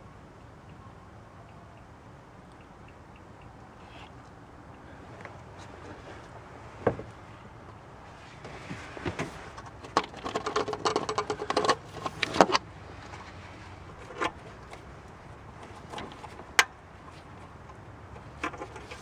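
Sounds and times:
sharp plastic clicks: 9.6s - 12.6s.

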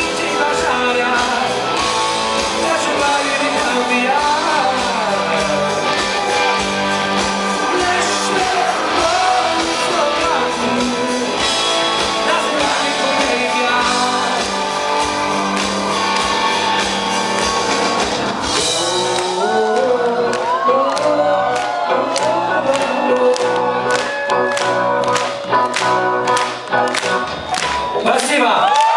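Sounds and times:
man singing: 0.0s - 1.8s, 2.5s - 6.6s, 7.4s - 14.7s, 18.5s - 24.5s
live rock band playing: 0.0s - 28.9s.

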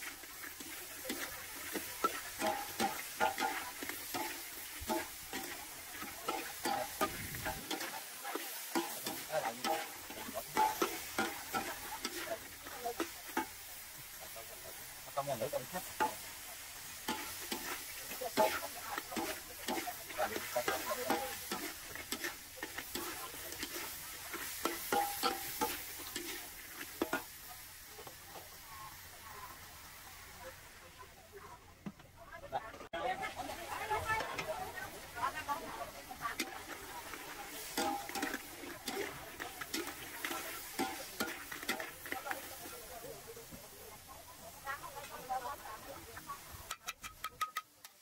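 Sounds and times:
metal utensil scraping a pan: 0.0s - 14.3s, 15.6s - 27.4s, 33.8s - 42.9s, 46.7s - 47.7s
food sizzling: 0.0s - 48.0s.

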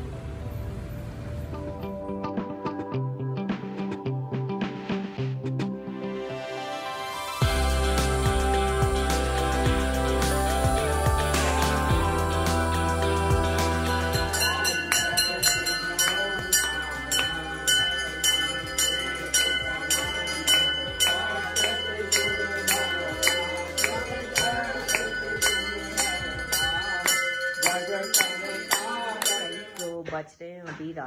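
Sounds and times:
music with low drone: 0.0s - 6.0s, 7.3s - 27.2s
metal bell rung rapidly: 14.1s - 30.0s.

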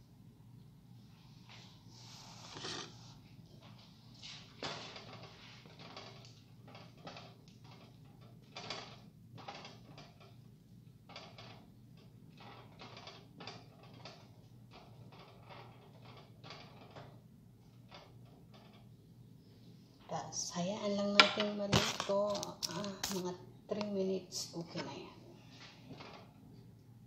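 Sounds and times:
wooden spoon scraping pot: 1.9s - 10.4s.

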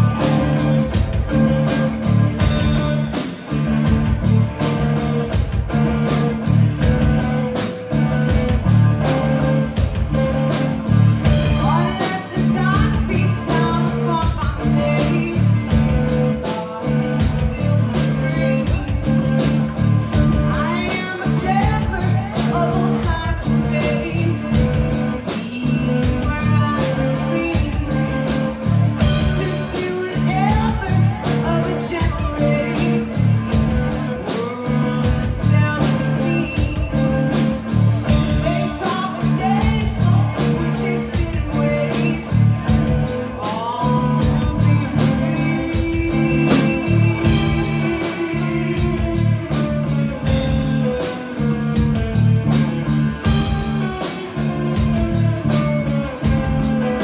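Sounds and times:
bass guitar: 0.0s - 57.0s
drum kit beat: 0.0s - 57.0s
electric guitars: 0.0s - 57.0s
woman singing: 10.5s - 52.6s.

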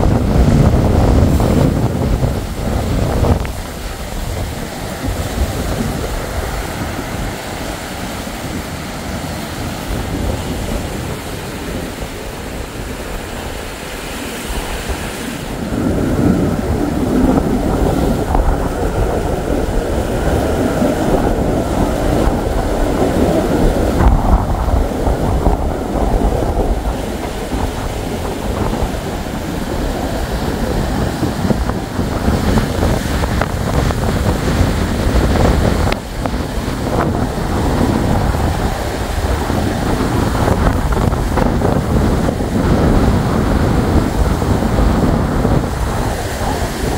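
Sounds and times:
storm surf crashing on rocks: 0.0s - 46.9s
wind buffeting microphone: 0.0s - 46.9s.

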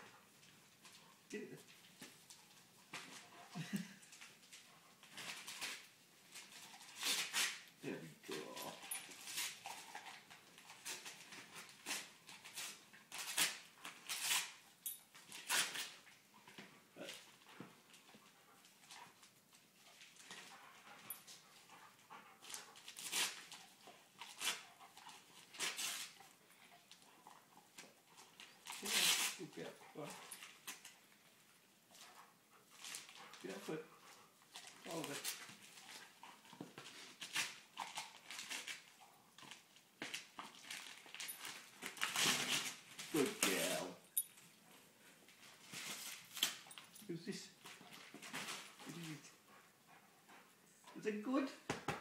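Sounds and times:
dog ripping wrapping paper: 5.0s - 7.7s, 8.3s - 14.6s, 15.3s - 16.0s, 22.4s - 26.2s, 28.6s - 30.9s, 34.5s - 36.1s, 36.8s - 44.0s, 45.6s - 46.7s.

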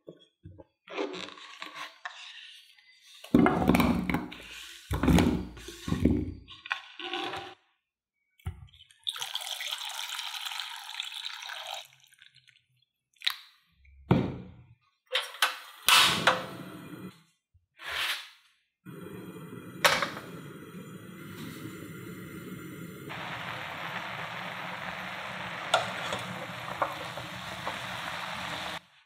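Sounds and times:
water pouring into a pan: 9.0s - 12.8s, 21.2s - 28.8s
gas burner rushing: 18.9s - 28.9s.

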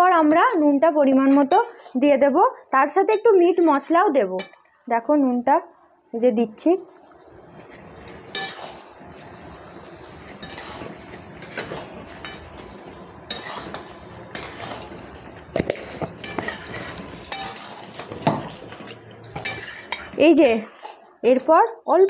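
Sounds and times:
cooking hiss: 0.0s - 21.3s
utensil scraping a pot: 7.6s - 21.0s.

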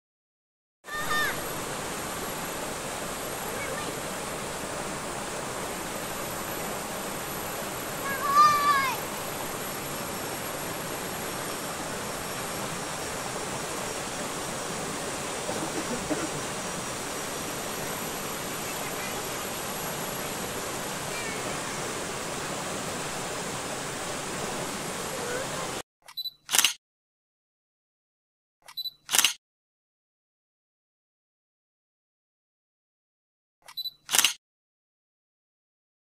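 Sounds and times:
river rushing over boulders: 0.9s - 25.8s.

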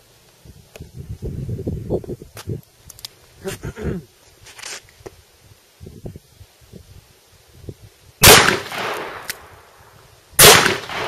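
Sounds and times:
revolver gunshots with echo: 8.2s - 9.5s, 10.4s - 11.0s.

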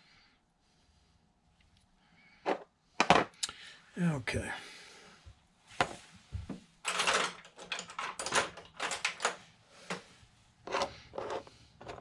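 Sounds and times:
metal parts scraping and clicking: 6.8s - 10.0s, 10.6s - 12.0s.

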